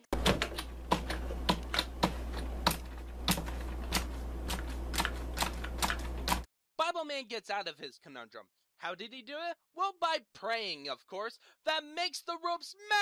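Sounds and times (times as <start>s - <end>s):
steady low hum: 0.0s - 6.4s
computer keyboard typing: 0.0s - 6.5s.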